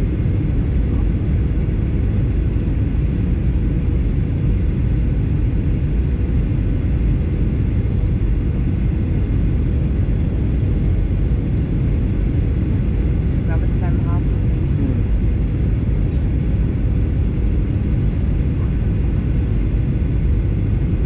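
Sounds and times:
jet engine low rumble: 0.0 - 21.0
steady cabin hum: 4.4 - 21.0.

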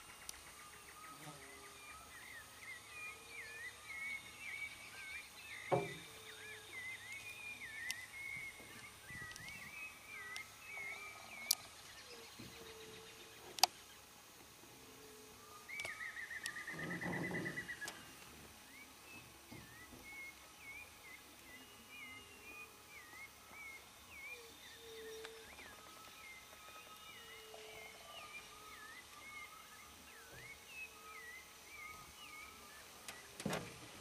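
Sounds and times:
birds singing: 0.0 - 34.0.

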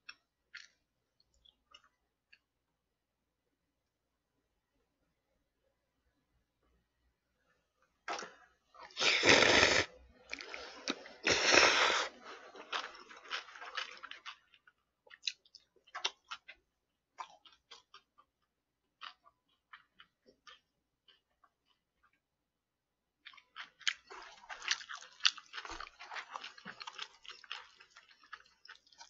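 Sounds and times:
noodles slurped loudly: 8.9 - 9.9
close-miked chewing: 10.2 - 22.3, 23.2 - 29.0.

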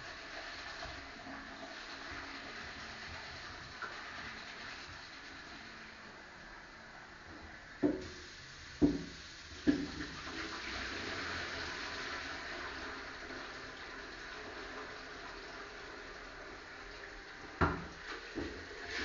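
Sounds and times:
tap water running into pot: 0.0 - 5.6, 7.8 - 19.0
pot knocking against sink: 8.8 - 10.1, 17.6 - 18.6.

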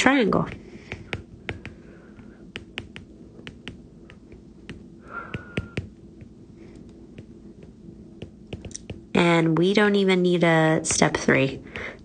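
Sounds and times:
faint low hum: 0.0 - 12.0
stylus tapping on glass screen: 0.5 - 6.4, 7.1 - 9.1.

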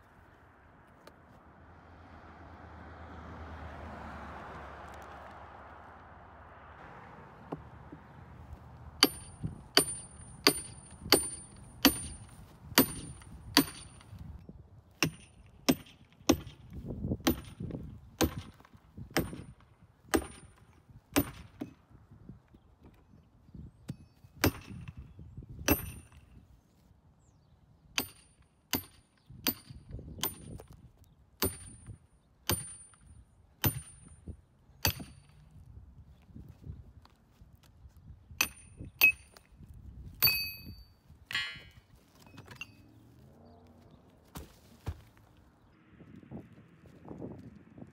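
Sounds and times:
sledgehammer striking steel chisel: 9.0 - 14.2, 15.0 - 16.6, 20.1 - 20.6, 28.0 - 30.6, 31.4 - 34.1, 34.8 - 35.3, 38.4 - 39.4.

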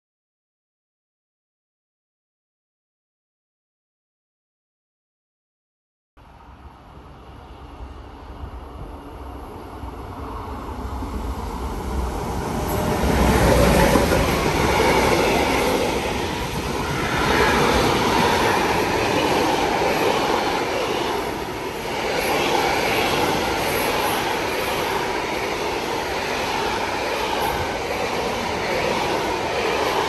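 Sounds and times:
freight train passing: 6.2 - 30.0.

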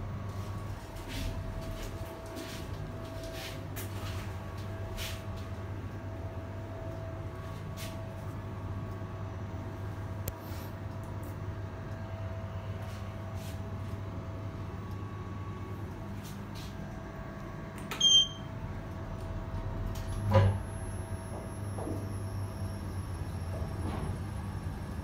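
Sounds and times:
short electronic beep: 18.0 - 18.5.

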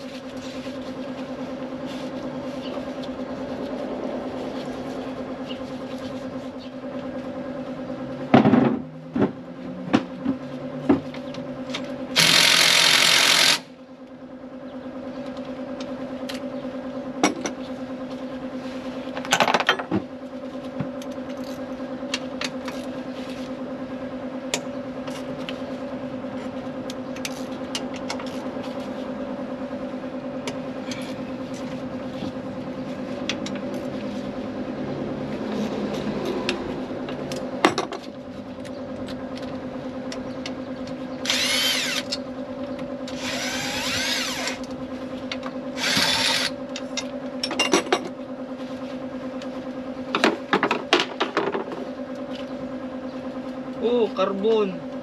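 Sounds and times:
handheld power tool spinning up: 12.2 - 13.7, 41.2 - 42.2, 43.0 - 44.7, 45.8 - 46.6
steady hum: 20.2 - 47.4
tools knocking against engine parts: 50.1 - 51.8.

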